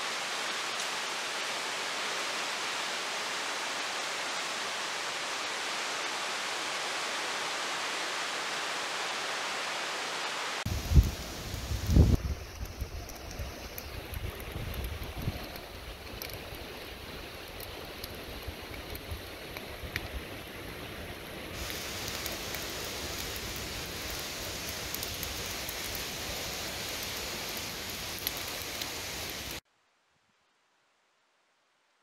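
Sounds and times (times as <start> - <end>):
twig fire crackling: 10.7 - 29.6.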